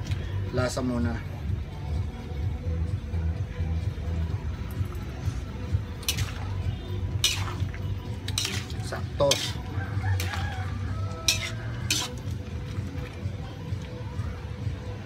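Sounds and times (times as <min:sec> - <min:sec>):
broth simmering: 0:03.1 - 0:15.0
metal ladle clinking against wok: 0:06.0 - 0:12.7.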